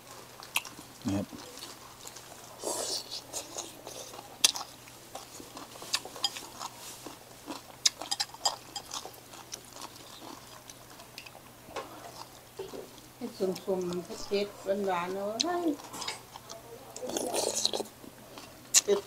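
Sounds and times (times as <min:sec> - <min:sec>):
chewing: 0:00.0 - 0:19.0
slurping noodles: 0:01.6 - 0:04.2
chopsticks and spoon clicking bowl: 0:07.9 - 0:09.5.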